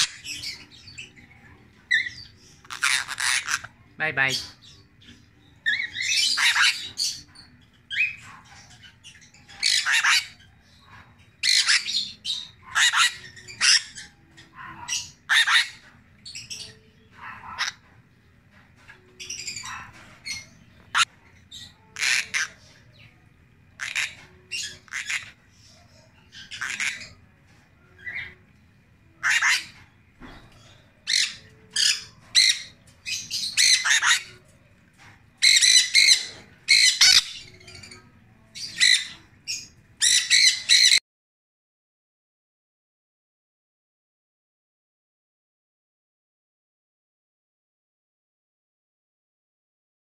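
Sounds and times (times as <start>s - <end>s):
parrot squawking: 0.0s - 1.2s, 1.9s - 4.7s, 5.6s - 10.6s, 11.4s - 17.9s, 19.2s - 22.8s, 23.8s - 25.5s, 26.3s - 27.2s, 29.2s - 29.8s, 31.0s - 34.5s, 35.4s - 41.0s.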